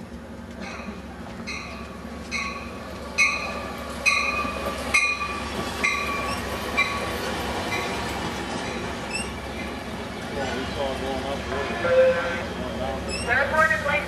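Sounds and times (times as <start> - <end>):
train cars rumbling: 0.0 - 14.0
train bell ringing: 1.5 - 7.1, 7.7 - 8.0.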